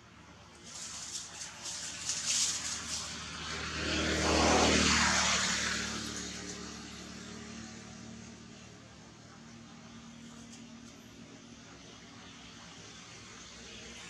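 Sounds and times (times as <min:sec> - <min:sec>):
dry leaves rustling: 0:00.4 - 0:06.8
vehicle passing: 0:00.6 - 0:10.2.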